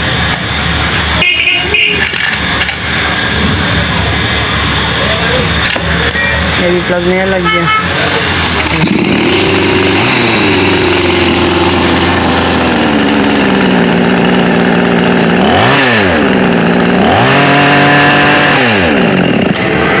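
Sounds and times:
chainsaw engine revving: 8.1 - 20.0.

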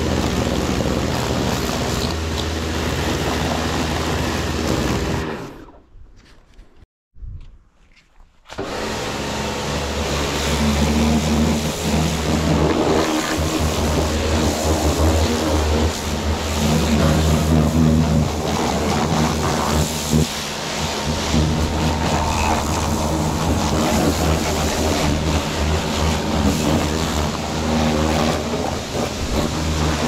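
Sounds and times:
pressure washer motor hum: 0.0 - 5.8, 8.5 - 30.0
water jet hissing: 9.9 - 30.0.

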